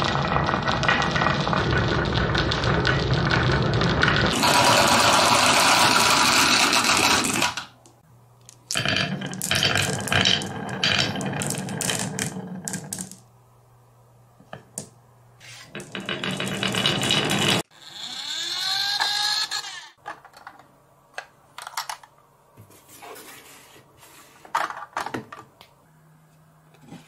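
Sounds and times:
marbles rolling down wooden track: 0.0 - 7.8, 8.7 - 13.3, 15.7 - 20.0.

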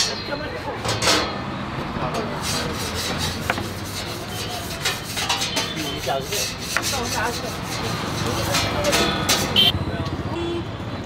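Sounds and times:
pizza cutter rasping on wood: 2.2 - 9.7.

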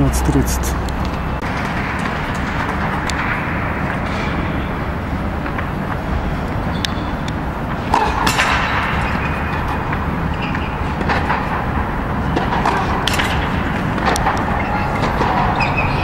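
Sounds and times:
steady low rumble: 0.0 - 7.9
tennis balls hit with rackets: 0.0 - 16.0
balls bouncing on court: 7.7 - 16.0.

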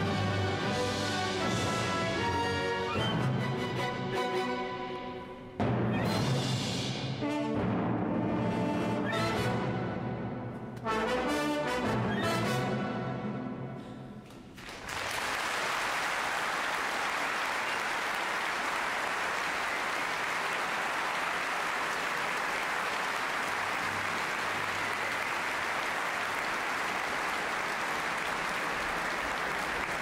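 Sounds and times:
orchestral music: 0.0 - 14.2, 23.4 - 27.2
audience applauding: 14.5 - 30.0.

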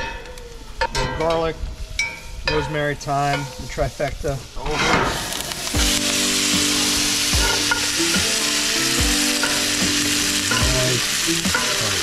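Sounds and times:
butter sizzling in a skillet: 3.0 - 12.0.

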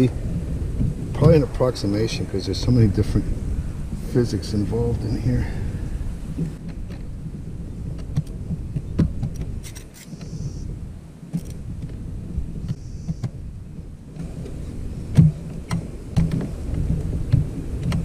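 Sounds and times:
low rumble: 0.0 - 9.6.

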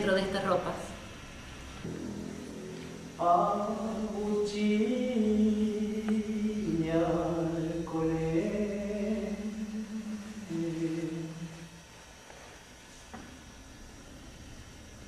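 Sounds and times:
person singing chant-like melody: 1.9 - 11.8.

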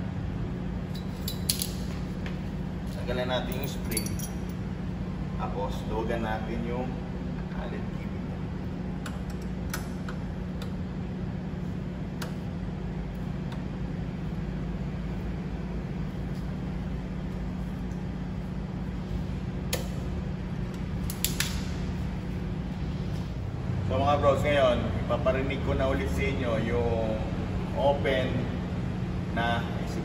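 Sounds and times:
steady low hum: 0.0 - 30.0
allen key metallic clicks: 1.0 - 2.0, 21.0 - 21.7.

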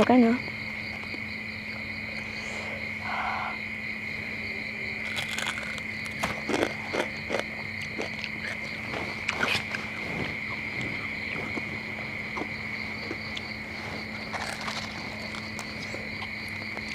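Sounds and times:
crickets chirping: 0.0 - 16.9
crunchy chewing: 4.8 - 16.9.

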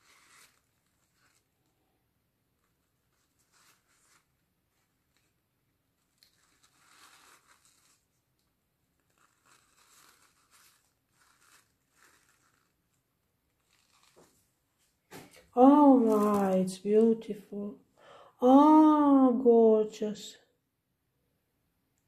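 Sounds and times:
wet paper napkin peeling: 0.0 - 1.6, 2.6 - 5.4, 6.0 - 8.4, 9.0 - 14.5.

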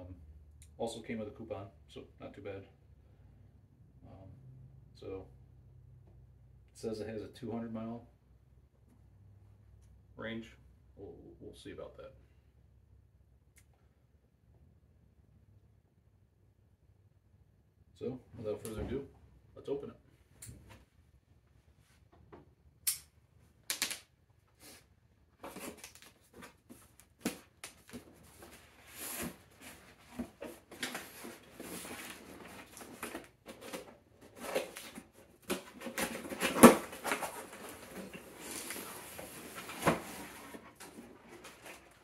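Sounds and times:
cardboard scraping and rustling: 25.4 - 42.0.

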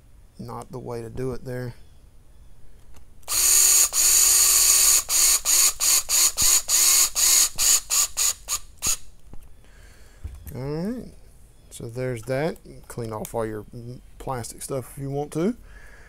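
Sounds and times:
electric screwdriver whining: 3.3 - 9.0.

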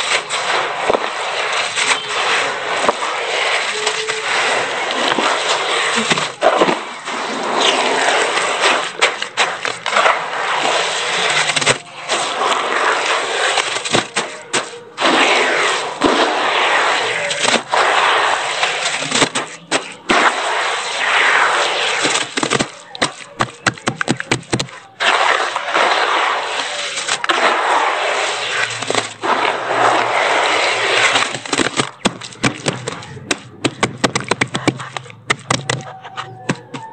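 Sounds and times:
hands squelching wet cement paste: 0.0 - 36.9
palms slapping wet paste: 21.9 - 27.6, 31.0 - 36.9.

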